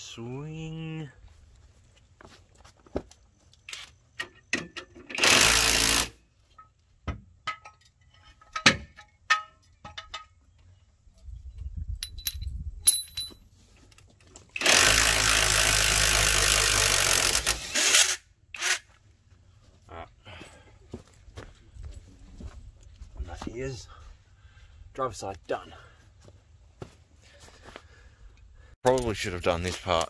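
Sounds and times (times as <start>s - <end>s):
tools clinking: 3.5s - 5.2s, 7.4s - 10.4s, 12.0s - 14.7s, 28.8s - 30.0s.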